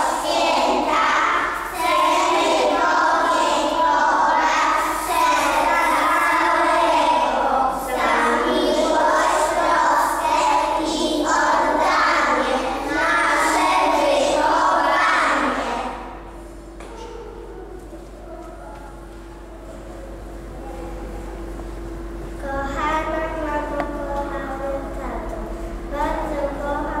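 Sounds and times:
young children singing: 0.0s - 16.2s.

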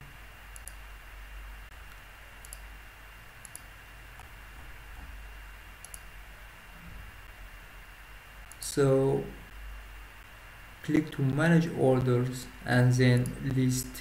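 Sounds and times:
low steady hum: 0.0s - 14.0s
computer mouse clicking: 0.5s - 0.8s, 1.9s - 2.7s, 3.4s - 4.3s, 5.8s - 6.1s, 8.4s - 8.7s.

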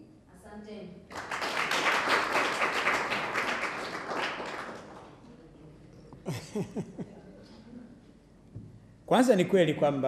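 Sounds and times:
audience clapping: 1.1s - 5.2s.

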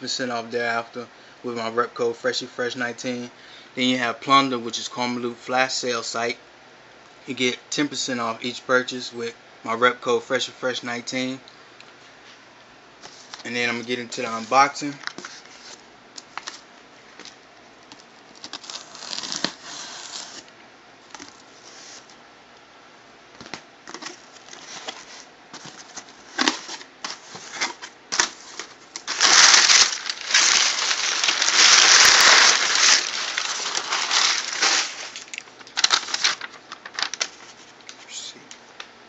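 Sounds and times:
cardboard rustling and scraping: 14.3s - 17.3s, 21.1s - 22.2s, 23.4s - 37.8s.

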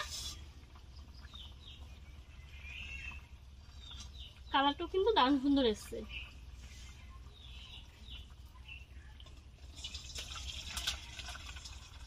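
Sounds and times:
small clicks and splashes: 9.1s - 12.0s.

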